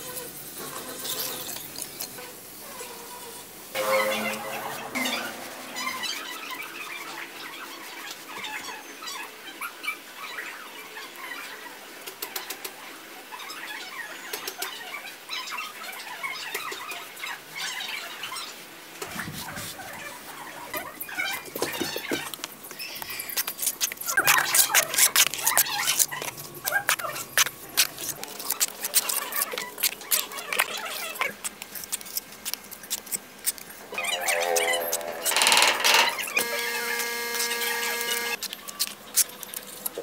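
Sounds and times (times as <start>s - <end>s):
hands handling craft materials: 21.4s - 33.8s.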